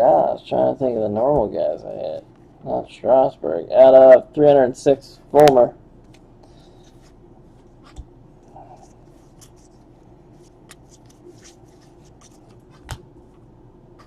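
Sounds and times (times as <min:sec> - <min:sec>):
trading cards flipped by hand: 0:09.1 - 0:13.4.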